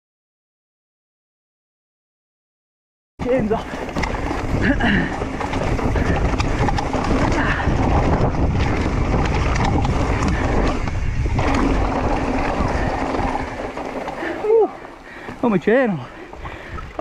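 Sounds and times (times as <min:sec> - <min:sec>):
wind on microphone: 0:03.2 - 0:14.9, 0:16.1 - 0:17.0
bike rattling and knocking: 0:03.2 - 0:17.0
bike tyres on dirt and stones: 0:03.2 - 0:17.0.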